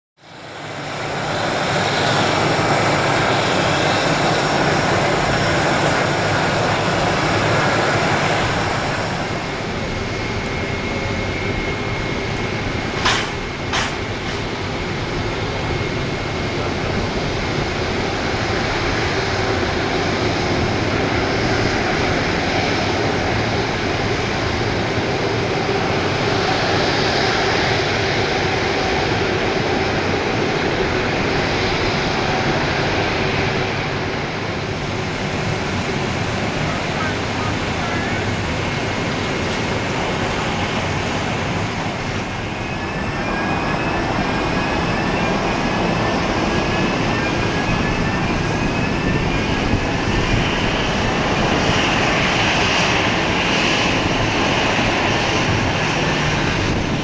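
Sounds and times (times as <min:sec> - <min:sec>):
jet engines rumbling and hissing: 0:00.2 - 0:57.0.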